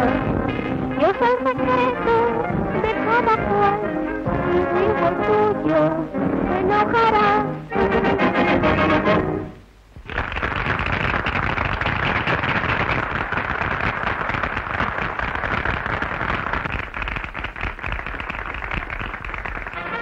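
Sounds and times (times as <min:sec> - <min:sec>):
audience applauding: 0:10.0 - 0:20.0.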